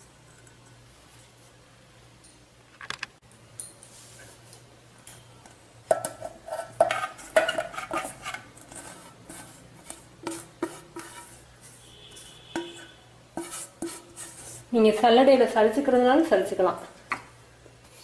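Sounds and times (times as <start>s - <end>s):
steel bowl clinking and scraping: 0.0s - 1.3s, 5.9s - 14.6s.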